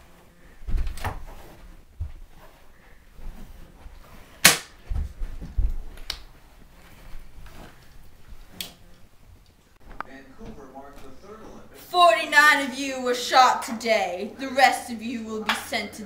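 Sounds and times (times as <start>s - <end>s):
dull thumps and scuffling: 0.5s - 8.4s
sharp crack: 4.4s - 4.8s.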